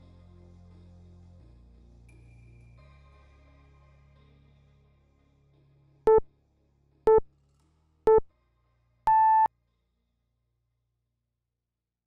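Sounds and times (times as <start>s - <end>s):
long high timer beep: 9.1s - 9.5s
short timer beeps: 9.1s - 9.5s.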